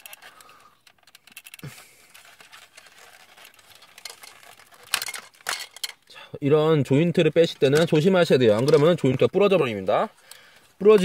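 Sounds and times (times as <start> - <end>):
plastic toy parts clicking: 0.0 - 6.1, 7.4 - 9.4.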